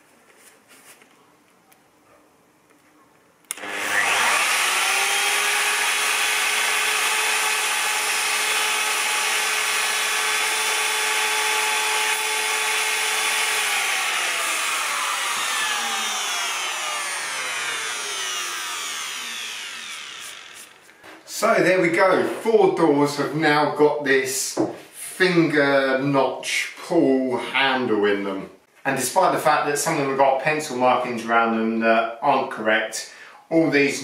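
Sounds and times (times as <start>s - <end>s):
router whining while cutting: 3.5s - 21.0s.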